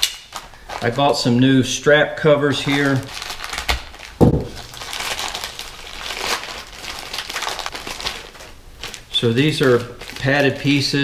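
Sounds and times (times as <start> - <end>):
packaging crinkling: 0.0 - 1.4, 2.5 - 11.0
soft thump: 4.2 - 4.6.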